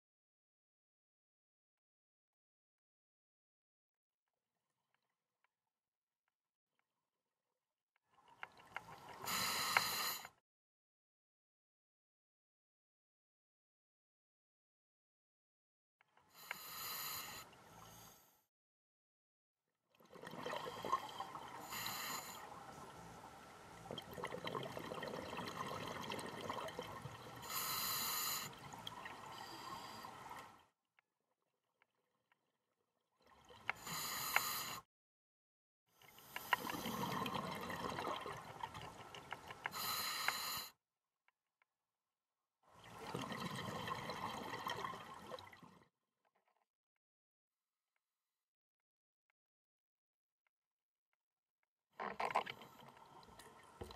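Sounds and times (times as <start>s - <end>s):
regulator inhale hiss: 9.2s - 10.3s, 16.3s - 18.4s, 21.6s - 22.5s, 27.4s - 28.6s, 29.3s - 30.4s, 33.7s - 34.8s, 39.7s - 40.7s.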